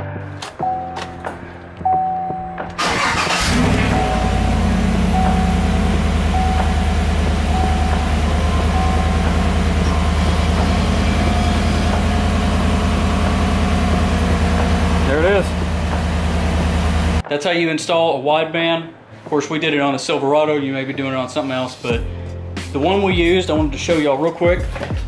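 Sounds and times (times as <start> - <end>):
car engine starting and idling: 0.4 - 17.2.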